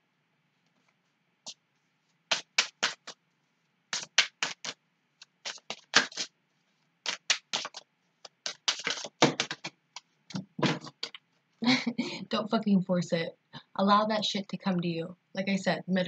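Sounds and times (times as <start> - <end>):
cards being shuffled: 2.3 - 3.2, 3.9 - 6.3, 7.0 - 11.2.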